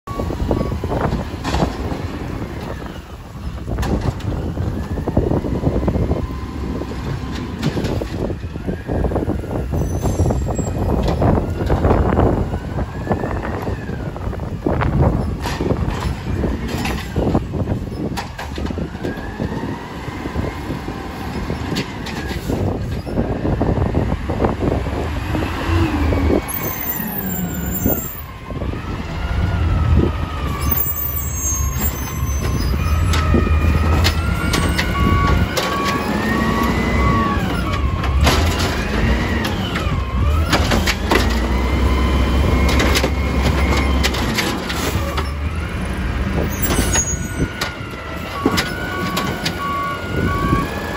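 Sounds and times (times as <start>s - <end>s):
garbage truck engine revving: 10.7s - 50.9s
hydraulic whine: 15.0s - 50.9s
wheelie bins knocking and banging: 37.7s - 39.6s.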